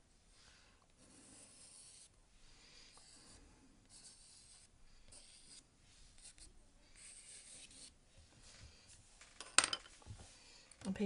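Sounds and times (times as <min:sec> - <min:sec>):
pencil scratching on paper: 0:01.0 - 0:02.2, 0:02.8 - 0:08.0.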